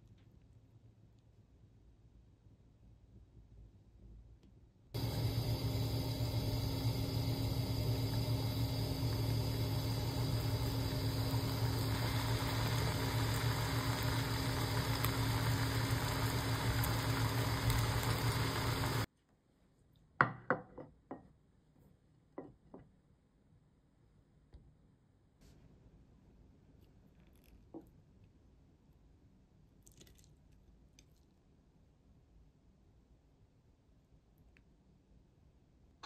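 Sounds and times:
broth bubbling in a pan: 5.0 - 19.1
steady motor hum: 5.0 - 19.1.

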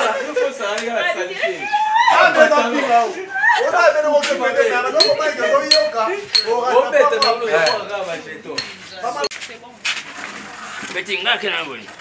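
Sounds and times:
sharp metallic clinks: 5.0 - 7.9.

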